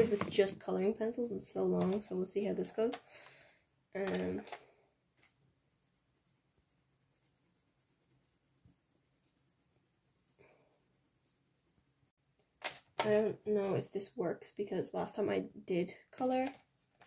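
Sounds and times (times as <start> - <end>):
pencil scratching on paper: 5.7 - 12.1.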